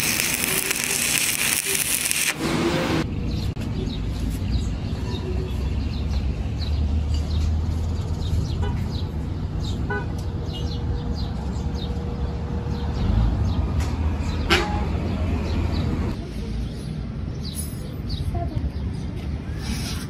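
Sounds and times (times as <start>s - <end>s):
small birds chirping: 3.2s - 14.5s.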